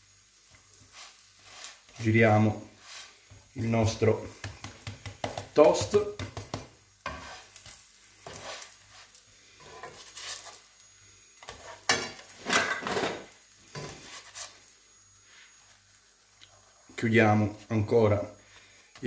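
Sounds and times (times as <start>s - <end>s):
egg sizzling: 0.0s - 19.0s
spatula scraping a frying pan: 0.5s - 10.8s, 11.4s - 14.7s.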